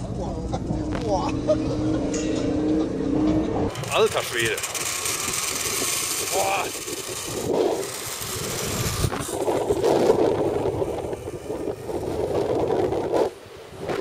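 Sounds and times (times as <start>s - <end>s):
zipline rollers on steel cables: 0.8s - 14.0s
wind across microphone: 4.9s - 14.0s.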